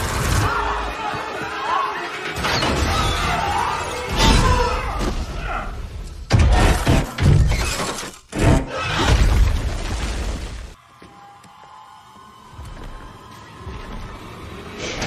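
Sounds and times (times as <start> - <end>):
music: 0.0 - 5.6.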